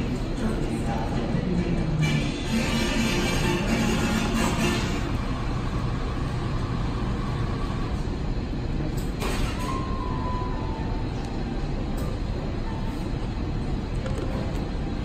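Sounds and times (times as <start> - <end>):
low indoor rumble: 0.0 - 15.0
faint short whistle-like tone: 9.4 - 11.3.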